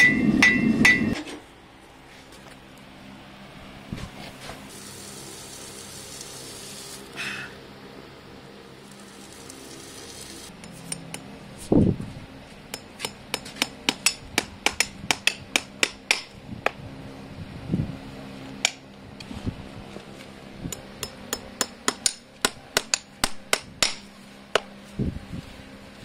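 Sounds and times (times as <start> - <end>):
hammer tapping nails into horseshoe: 12.8 - 16.3, 20.7 - 24.0.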